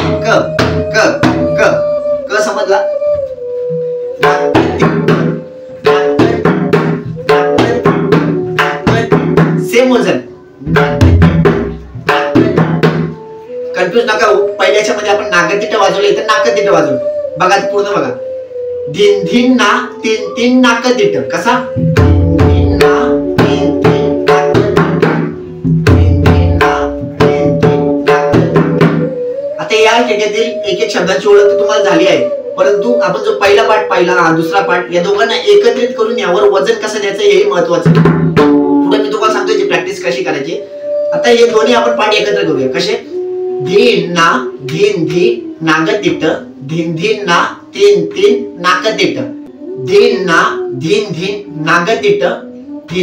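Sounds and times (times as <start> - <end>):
hand drum strokes: 0.0 - 1.9, 3.1 - 9.8, 10.7 - 13.7, 21.7 - 29.6, 37.8 - 40.1
pakhawaj drum playing: 0.0 - 53.0.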